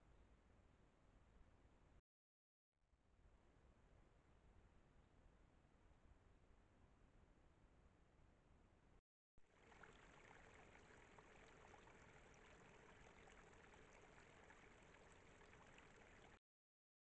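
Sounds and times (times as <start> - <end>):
faint rushing hiss with crackles: 9.6 - 16.4.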